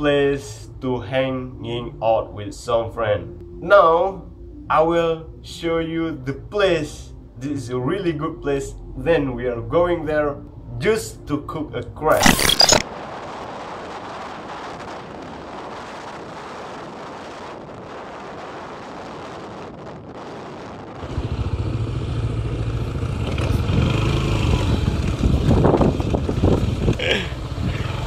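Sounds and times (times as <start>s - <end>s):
wind rushing over microphone: 12.9s - 21.9s, 24.4s - 28.0s.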